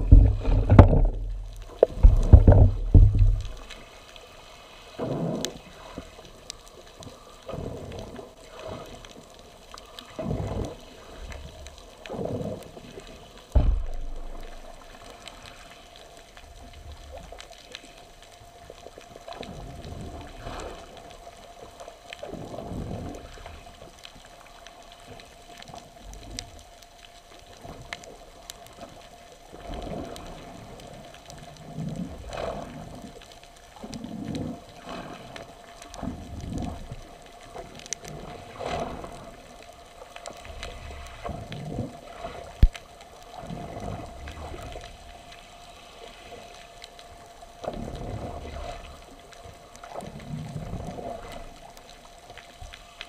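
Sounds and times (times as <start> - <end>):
water sloshing against hull: 0.0 - 53.0
steady hum: 13.2 - 16.4.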